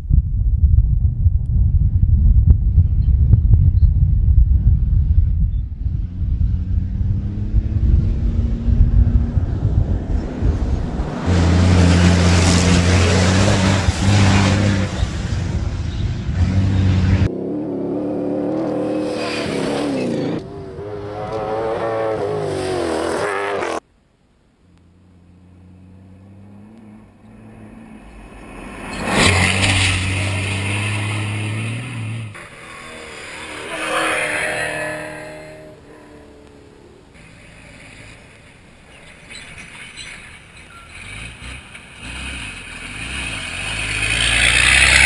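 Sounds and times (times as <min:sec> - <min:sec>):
engine revving: 0:05.8 - 0:23.8, 0:24.8 - 0:38.2, 0:40.7 - 0:45.0
truck engine passing at speed: 0:05.8 - 0:23.8, 0:24.9 - 0:38.8, 0:40.4 - 0:45.0.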